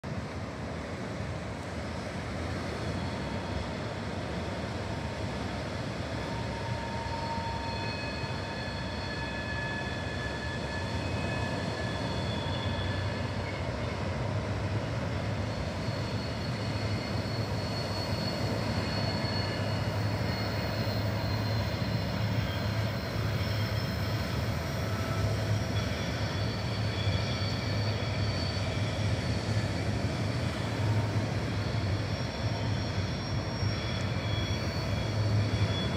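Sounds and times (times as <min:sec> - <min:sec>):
diesel locomotive engine drone: 0:00.0 - 0:35.9.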